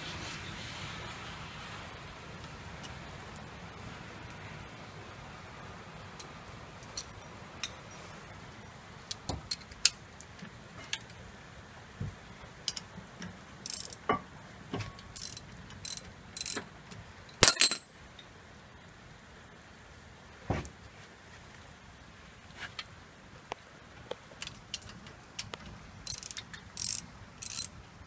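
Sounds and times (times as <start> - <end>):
rain hissing: 0.0 - 28.0
metallic clicks of brake pads: 9.0 - 11.2, 12.5 - 18.3, 23.5 - 27.7.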